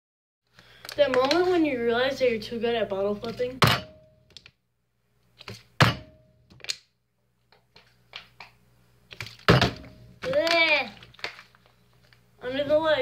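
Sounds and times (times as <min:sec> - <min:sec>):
plastic bottle landing thunk: 0:03.6 - 0:04.0, 0:05.8 - 0:06.2, 0:09.4 - 0:10.0.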